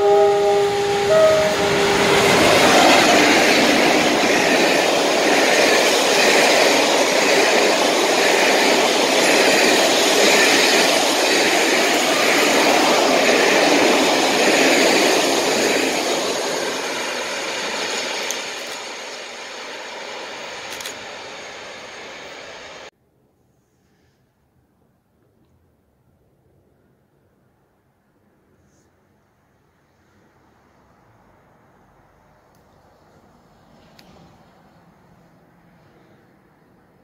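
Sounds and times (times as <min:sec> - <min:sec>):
train passing at speed: 0:00.0 - 0:22.9, 0:29.3 - 0:37.0
wheels beating over rails: 0:00.5 - 0:22.5.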